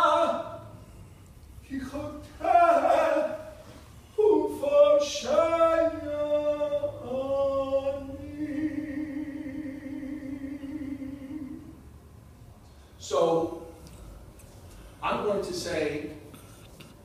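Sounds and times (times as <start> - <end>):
solo voice chanting: 1.6 - 11.8.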